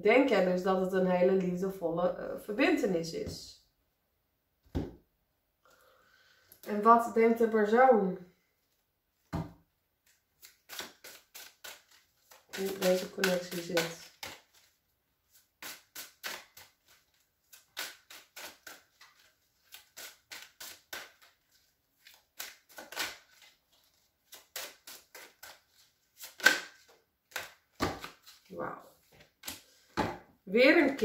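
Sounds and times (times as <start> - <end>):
cards being shuffled: 10.0 - 30.2.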